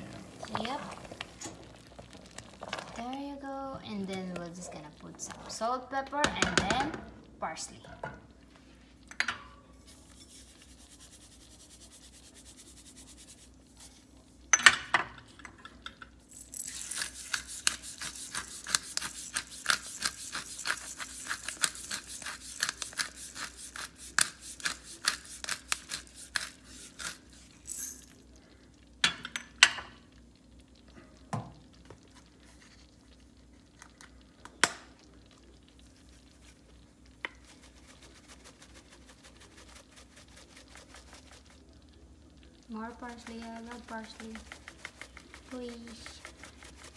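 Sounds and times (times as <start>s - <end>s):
pepper mill grinding: 16.3s - 28.2s, 42.8s - 46.9s.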